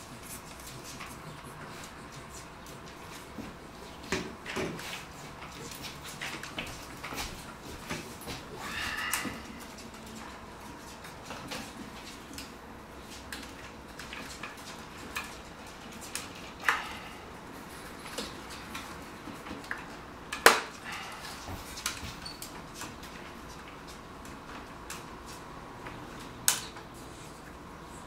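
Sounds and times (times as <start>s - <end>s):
plastic snap: 20.4s - 20.7s.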